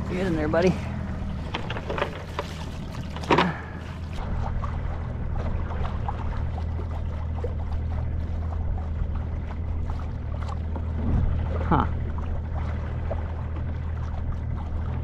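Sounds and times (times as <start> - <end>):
outboard motor idling: 0.0 - 15.0
water noise: 0.0 - 15.0.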